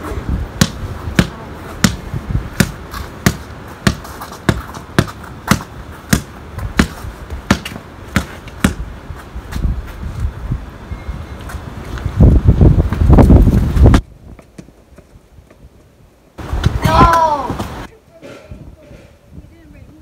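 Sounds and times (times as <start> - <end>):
basketball bouncing: 0.6 - 2.0, 2.6 - 8.8.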